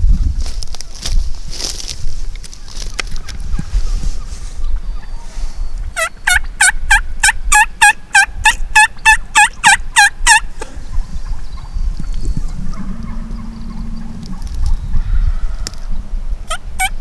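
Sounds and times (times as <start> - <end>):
turkey yelps: 6.0 - 11.0, 16.5 - 17.0.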